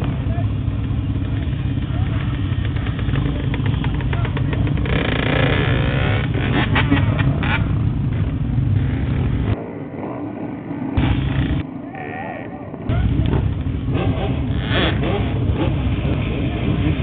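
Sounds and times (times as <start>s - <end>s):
motorcycle engines rumbling: 0.0s - 17.0s
crowd voices: 6.8s - 14.4s.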